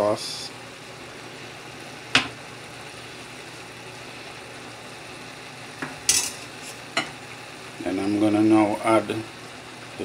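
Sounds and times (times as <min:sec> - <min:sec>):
pot cooking hum: 0:00.0 - 0:10.0
utensil clattering on pot: 0:06.1 - 0:06.4.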